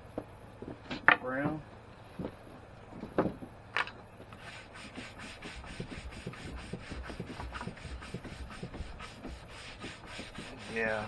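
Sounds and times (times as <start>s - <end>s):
scrubbing charred wood board: 4.4s - 11.0s
sharp knocks: 5.7s - 10.9s.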